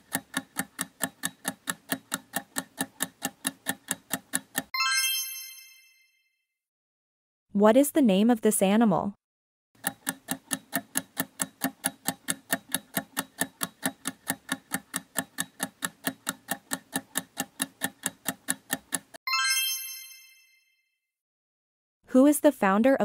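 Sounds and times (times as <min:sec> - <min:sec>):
timer ticking: 0:00.0 - 0:04.7, 0:09.8 - 0:19.2
bright chime: 0:04.8 - 0:06.2, 0:19.3 - 0:20.8.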